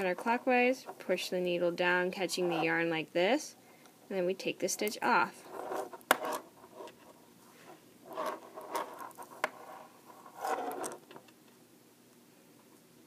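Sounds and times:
yarn rubbing: 7.6 - 11.0.

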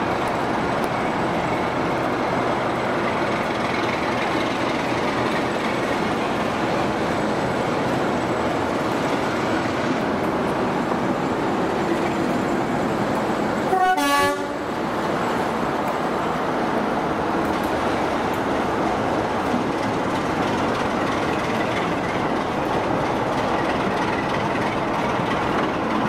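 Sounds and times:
diesel locomotive engine running: 0.0 - 26.0
locomotive horn toot: 13.7 - 14.7.

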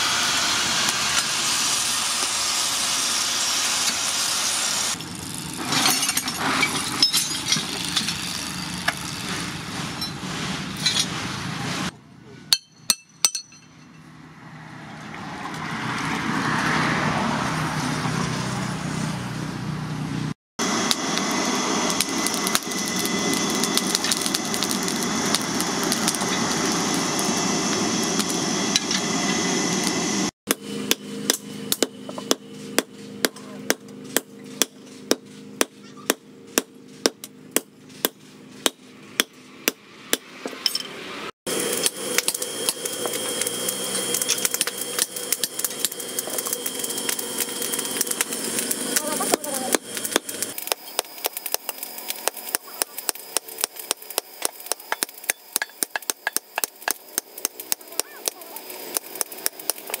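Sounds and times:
hammer striking hot steel on anvil: 12.5 - 14.1, 30.5 - 41.0, 41.7 - 60.0
rapid workshop clicks: 41.8 - 60.0.

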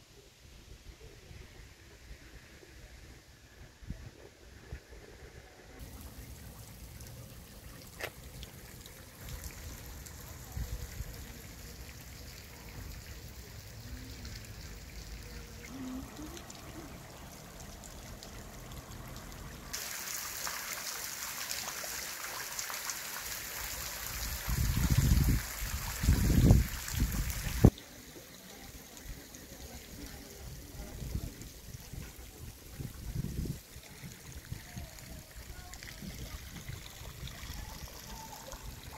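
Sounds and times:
brine trickling and dripping: 5.8 - 38.9.

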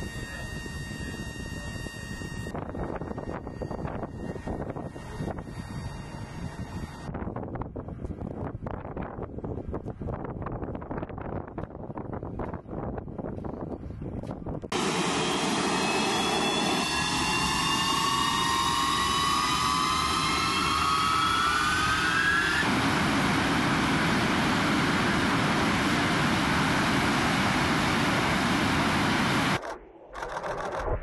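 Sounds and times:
jet engines spooling up: 0.0 - 7.1, 14.7 - 31.0
steady jet roar: 14.7 - 31.0.

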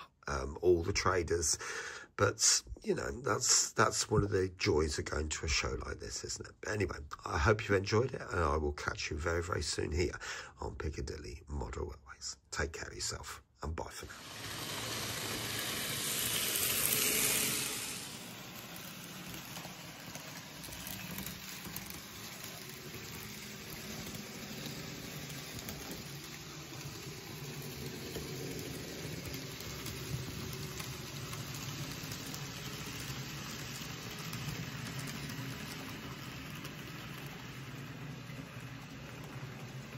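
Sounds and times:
model train motors rumbling: 13.8 - 39.9.

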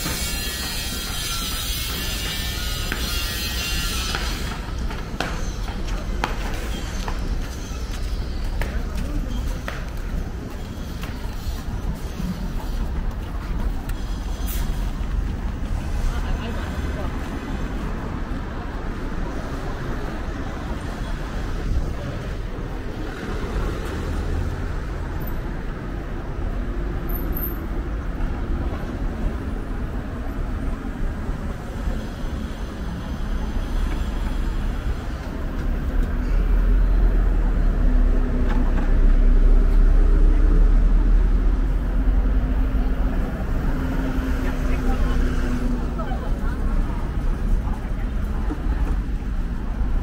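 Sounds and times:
cars and buses passing: 0.0 - 50.0.

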